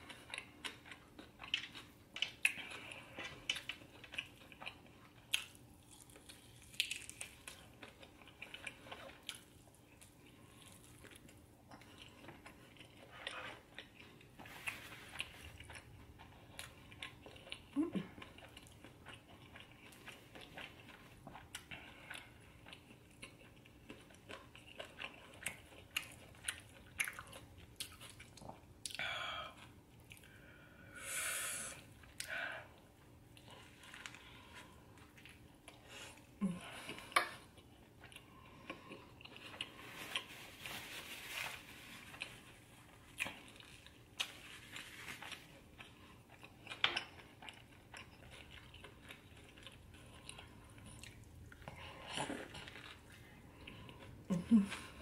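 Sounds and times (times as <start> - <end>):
person chewing food: 0.0 - 31.0, 31.7 - 55.0.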